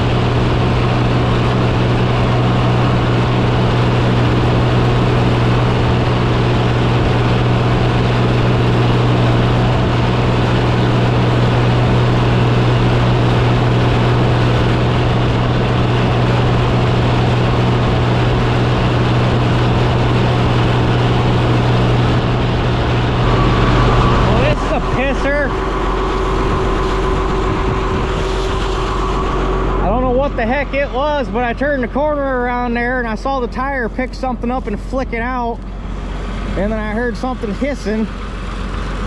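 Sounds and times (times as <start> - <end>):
tractor engine running: 0.0 - 39.0.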